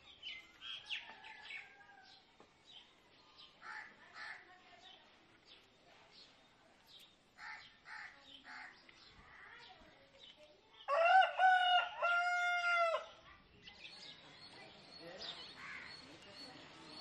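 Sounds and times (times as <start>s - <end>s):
rooster crowing: 10.9s - 13.1s.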